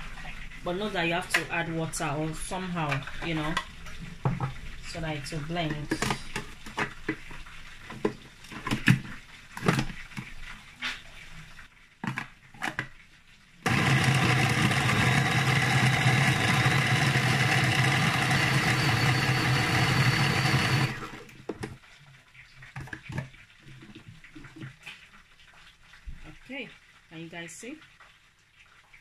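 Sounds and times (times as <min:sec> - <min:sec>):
food processor motor humming: 0:13.6 - 0:21.3.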